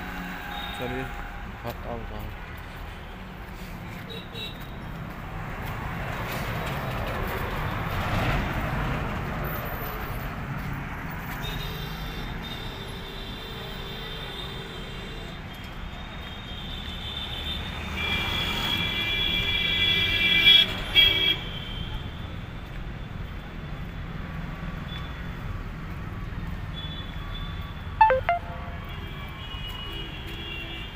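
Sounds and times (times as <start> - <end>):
high-pitched vehicle horn: 28.0 - 29.2.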